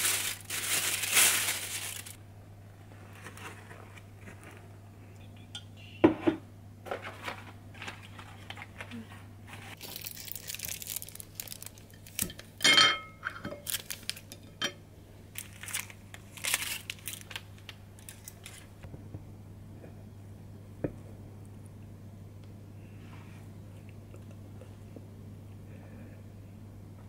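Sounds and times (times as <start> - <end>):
plastic film crinkling: 0.0 - 2.2, 9.6 - 12.5, 13.6 - 14.4, 15.3 - 18.8.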